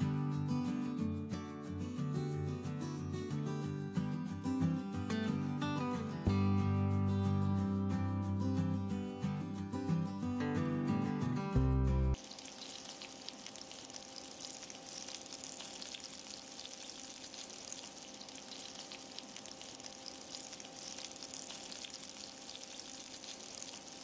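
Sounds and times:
sausage sizzling in a frying pan: 12.2 - 24.0.

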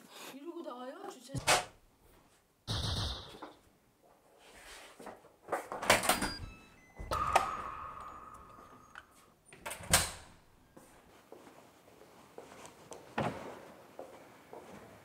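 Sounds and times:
electronic beeps: 6.1 - 9.2.

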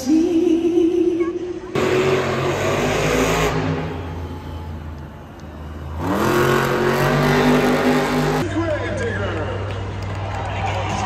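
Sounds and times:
truck engine revving: 1.7 - 8.5.

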